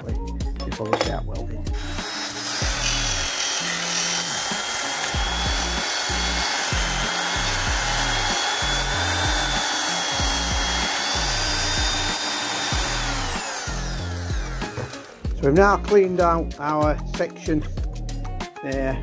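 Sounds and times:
background music with bass: 0.0s - 3.3s, 5.1s - 19.0s
electric sander whining on steel: 1.8s - 15.5s.

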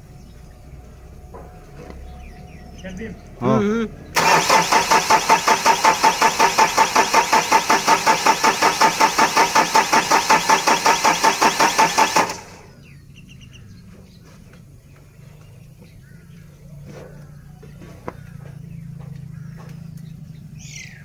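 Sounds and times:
diesel engine cranking: 4.1s - 13.0s.

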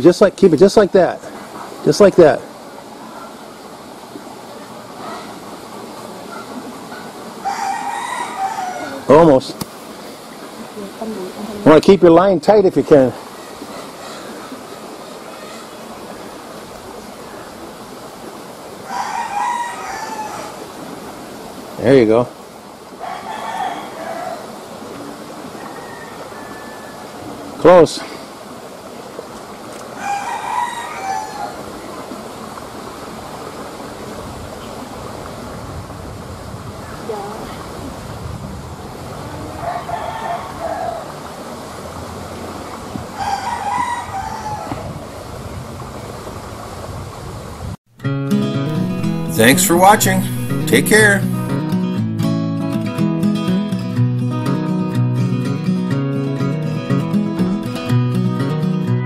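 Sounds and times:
background hiss: 0.0s - 25.6s, 48.4s - 51.9s
rooster crowing: 7.4s - 9.1s, 18.8s - 20.6s, 23.0s - 24.6s, 25.5s - 27.2s, 30.0s - 31.7s, 39.6s - 41.2s, 43.2s - 44.8s.

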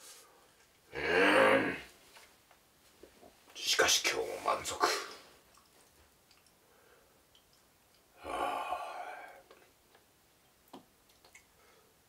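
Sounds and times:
man sighing: 8.2s - 9.5s.

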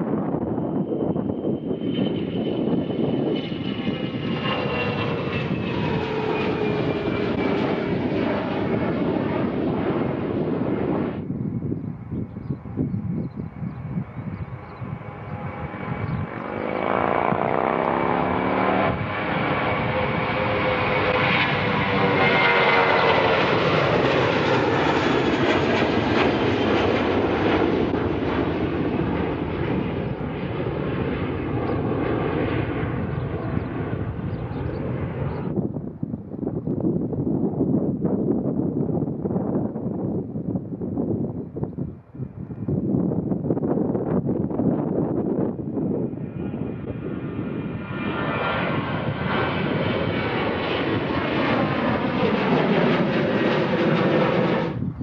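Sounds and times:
jet engines at takeoff: 0.0s - 55.0s.

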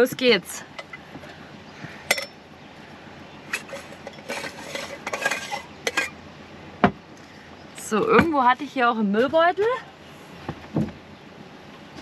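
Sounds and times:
dishes clinking and knocking: 3.6s - 6.2s.

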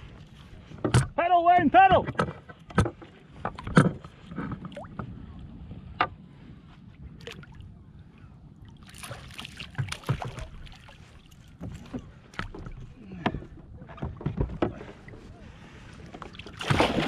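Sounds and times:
water sloshing against kayak: 0.0s - 17.0s
wind rumbling on microphone: 0.0s - 17.0s
splashy rush of water: 16.5s - 17.0s.

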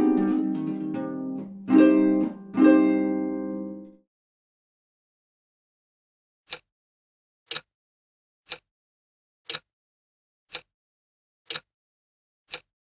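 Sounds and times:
short ticks: 7.5s - 7.7s, 8.5s - 8.7s, 9.5s - 9.7s, 11.5s - 11.7s, 12.5s - 12.7s.

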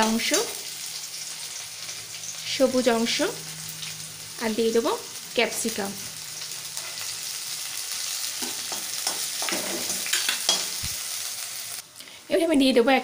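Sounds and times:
vegetables sizzling in hot oil: 0.0s - 12.5s.

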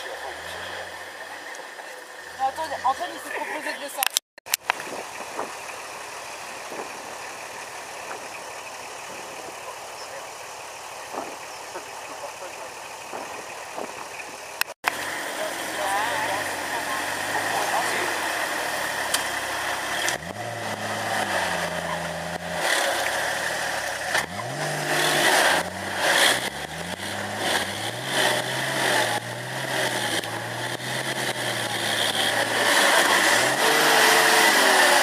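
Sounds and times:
engine revving hard: 15.2s - 35.0s.

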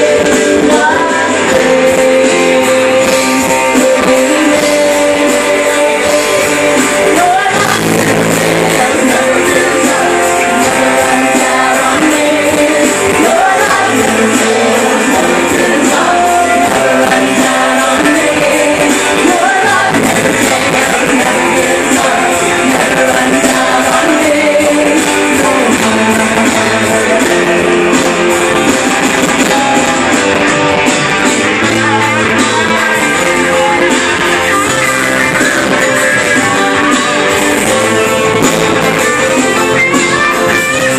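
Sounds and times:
person singing: 0.0s - 30.3s
live worship band playing: 0.0s - 40.9s.

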